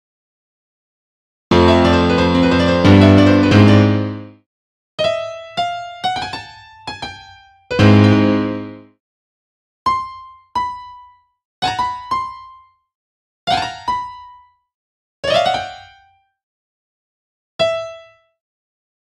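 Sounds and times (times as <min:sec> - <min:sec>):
electric piano synth notes: 0:01.5 - 0:04.3, 0:07.8 - 0:08.8.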